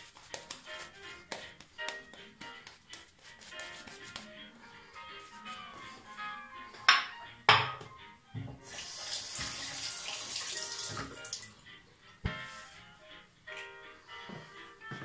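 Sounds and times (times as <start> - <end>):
tap water running into sink: 8.5 - 11.5.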